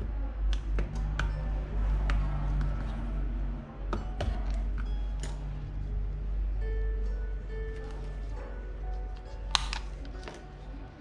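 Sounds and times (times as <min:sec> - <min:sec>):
steady low hum: 0:00.0 - 0:11.0
plastic clips clicking and snapping: 0:09.2 - 0:10.4.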